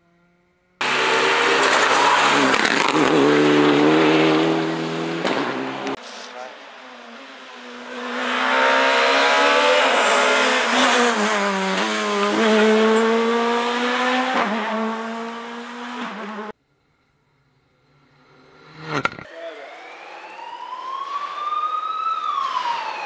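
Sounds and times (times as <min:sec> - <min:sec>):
rally car engine passing: 0:00.0 - 0:16.5, 0:17.3 - 0:19.3.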